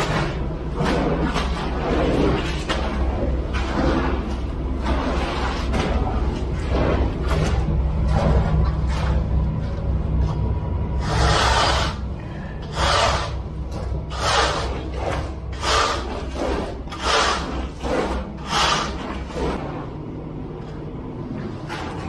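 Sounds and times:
hand tool scraping wet concrete: 0:00.0 - 0:09.4, 0:11.0 - 0:19.8
steady low rumble: 0:00.0 - 0:22.0.

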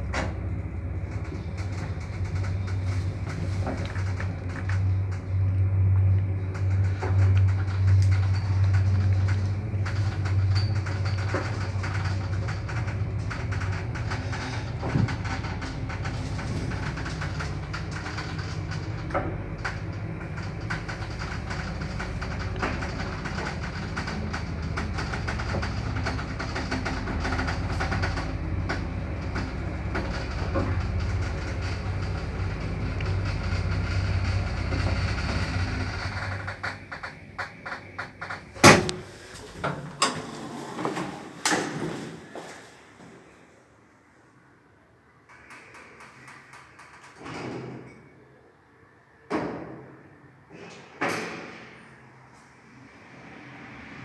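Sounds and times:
lift drive rumble and hum: 0:00.0 - 0:40.6
lift car clicking and rattling: 0:00.0 - 0:42.5
lift door clunks: 0:36.4 - 0:40.3.

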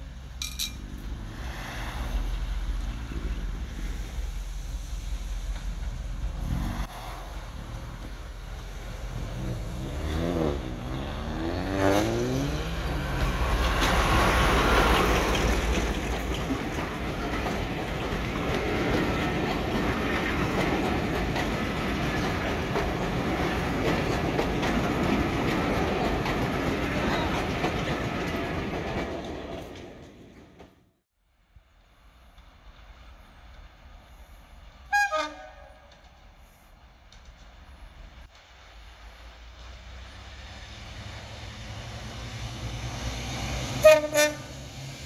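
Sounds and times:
diesel locomotive engine: 0:00.0 - 0:30.9, 0:31.6 - 0:45.0
wheels clicking over rail joints: 0:07.6 - 0:30.8.

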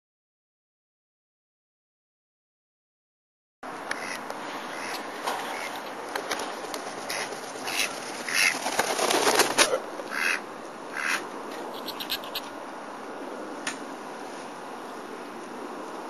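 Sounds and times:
duck quacking: 0:03.9 - 0:05.7, 0:07.1 - 0:08.6, 0:09.7 - 0:12.5.

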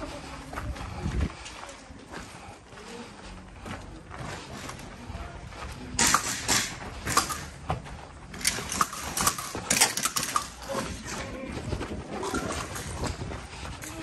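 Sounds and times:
footsteps crunching on gravel: 0:00.0 - 0:06.0, 0:10.6 - 0:14.0
gear and rifle rattling: 0:06.0 - 0:14.0.

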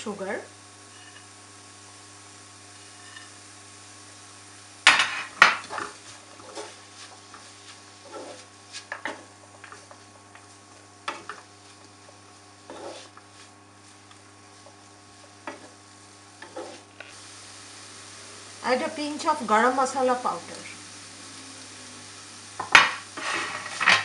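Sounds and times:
faint steady hum: 0:00.0 - 0:24.0
wooden spoon stirring in a pan: 0:05.2 - 0:17.3.

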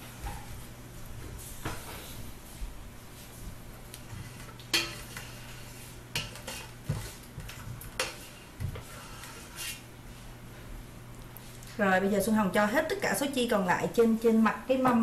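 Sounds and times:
metal spoon scraping bowl and pot: 0:04.4 - 0:06.7.

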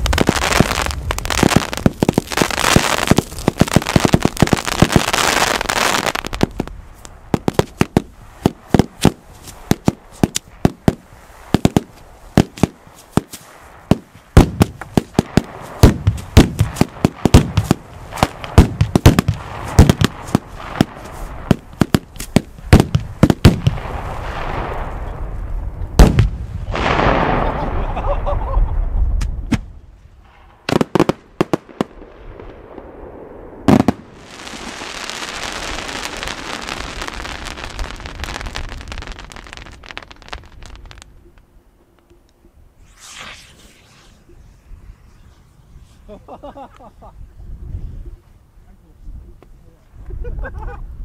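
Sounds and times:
fireworks crackling: 0:00.0 - 0:28.6, 0:30.2 - 0:41.5, 0:42.7 - 0:47.3
fireworks bangs: 0:00.0 - 0:41.1, 0:42.8 - 0:47.1.

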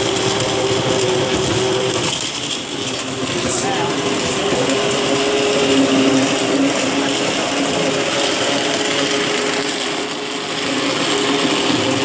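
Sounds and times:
immersion blender motor hum: 0:02.8 - 0:12.0.

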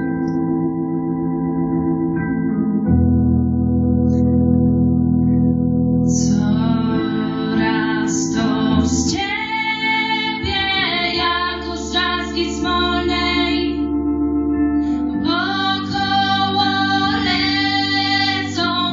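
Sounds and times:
instrumental backing: 0:00.0 - 0:18.9
women singing into microphones: 0:06.1 - 0:13.8, 0:15.2 - 0:18.9.

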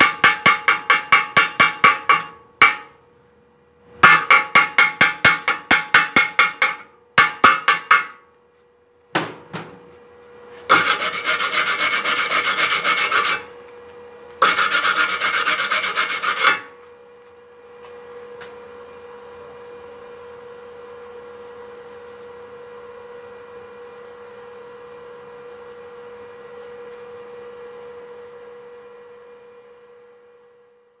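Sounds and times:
wire brush scrubbing metal: 0:10.7 - 0:13.5, 0:14.4 - 0:16.7.

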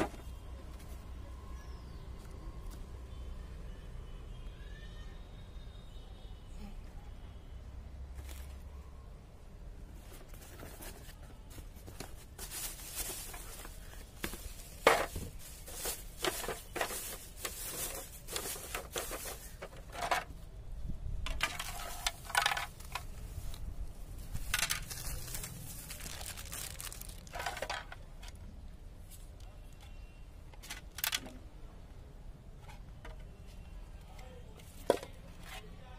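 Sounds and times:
plastic wrapping crinkling: 0:10.3 - 0:20.3, 0:21.4 - 0:28.1
hard plastic parts knocking: 0:13.6 - 0:20.3.

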